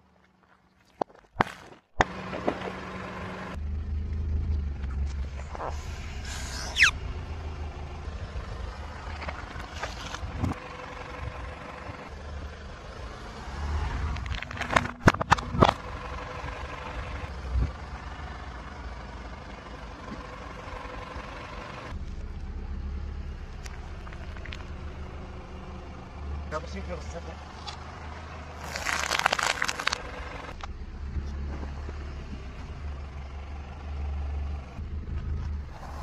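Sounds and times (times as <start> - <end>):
car rumbling at low speed: 0.0 - 36.0
sharp cracks and pops: 28.6 - 30.8.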